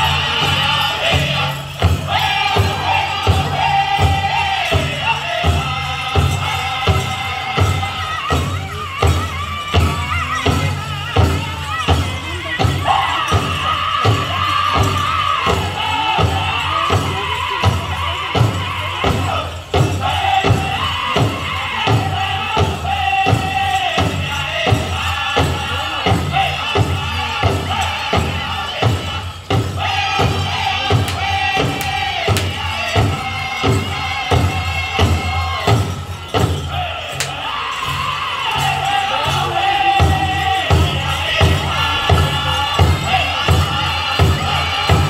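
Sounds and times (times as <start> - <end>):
group singing in chorus: 0.0 - 8.2, 18.0 - 45.0
steady drumbeat: 0.0 - 45.0.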